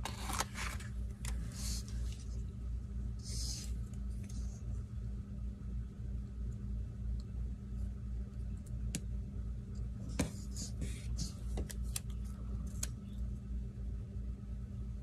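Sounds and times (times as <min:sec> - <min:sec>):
paper rustling: 0:00.0 - 0:02.3
steady low hum: 0:00.0 - 0:15.0.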